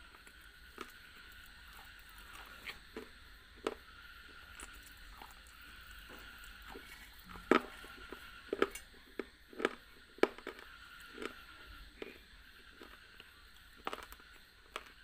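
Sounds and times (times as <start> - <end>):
crunchy bites and chewing: 0.0 - 15.0.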